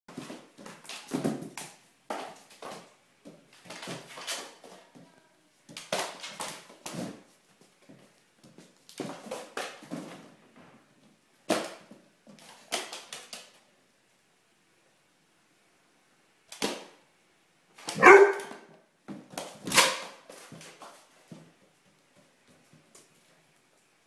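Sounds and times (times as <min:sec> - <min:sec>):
dog claws scrabbling on tiles: 0:11.8 - 0:13.6.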